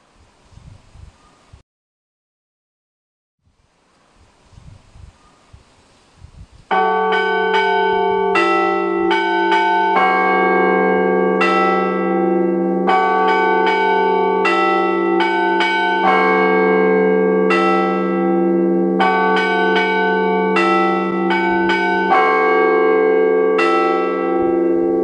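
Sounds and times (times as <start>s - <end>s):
large bells humming: 6.7s - 25.0s.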